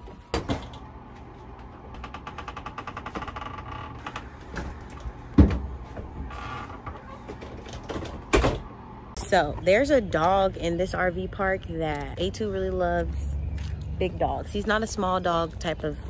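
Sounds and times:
doors creaking open: 0.0s - 8.8s.

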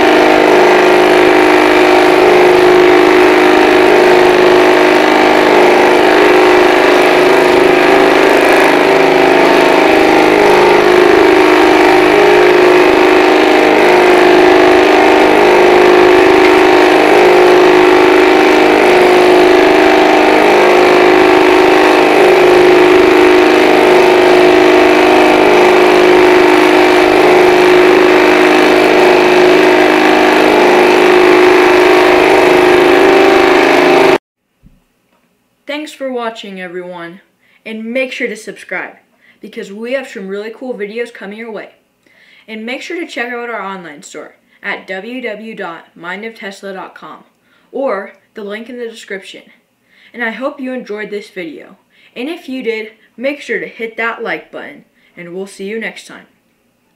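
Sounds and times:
electric motor humming: 0.0s - 34.2s.

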